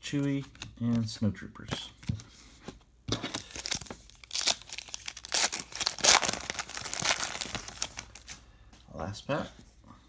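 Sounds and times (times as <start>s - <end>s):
foil wrapper tearing and crinkling: 3.3s - 8.3s.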